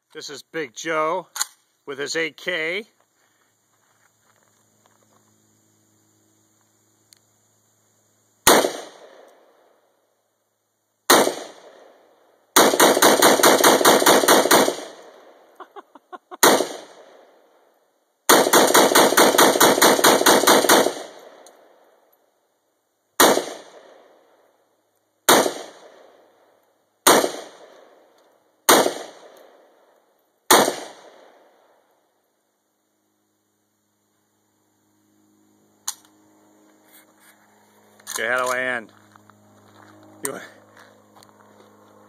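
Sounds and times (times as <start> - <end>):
rifle gunshots: 8.4 - 9.3, 11.1 - 12.0, 12.6 - 15.2, 16.4 - 17.2, 18.3 - 21.4, 23.2 - 24.1, 25.3 - 26.1, 27.0 - 27.9, 28.7 - 29.7, 30.5 - 31.5
gunshot echo: 8.4 - 9.5, 11.1 - 12.0, 16.4 - 17.2, 23.2 - 24.1, 25.3 - 26.1, 27.0 - 27.9, 28.7 - 29.6, 30.5 - 31.5.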